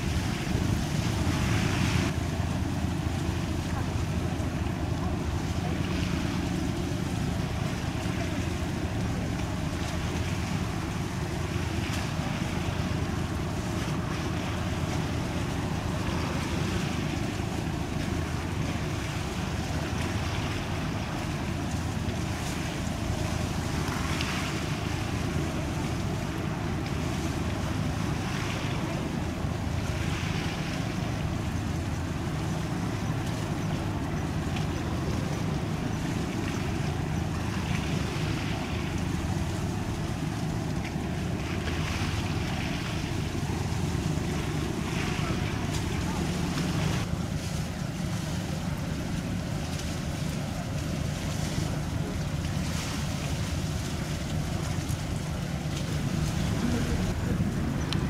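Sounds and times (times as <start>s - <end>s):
boat engines droning: 0.0s - 58.0s
water washing in swells: 0.0s - 58.0s
wind buffeting microphone: 0.0s - 58.0s.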